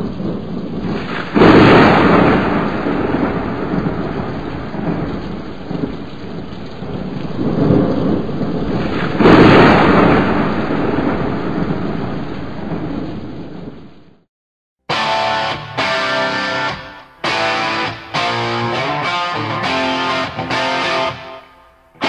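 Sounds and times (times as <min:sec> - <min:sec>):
steady rain: 0:00.0 - 0:14.2, 0:14.9 - 0:22.0
thunder: 0:00.0 - 0:14.3, 0:15.8 - 0:22.0.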